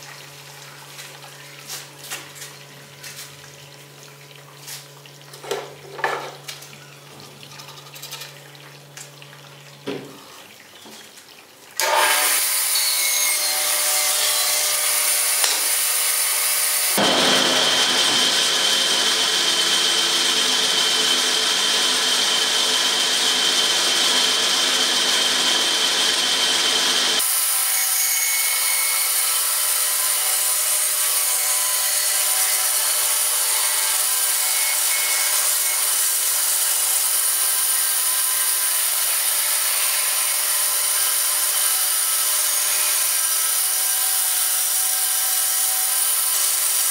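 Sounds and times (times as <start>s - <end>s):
band saw cutting wood: 11.8s - 46.9s.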